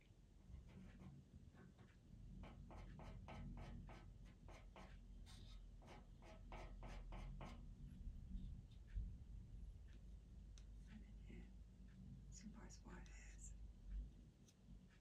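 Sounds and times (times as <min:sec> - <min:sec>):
pencil scratching on paper: 0:00.6 - 0:07.8.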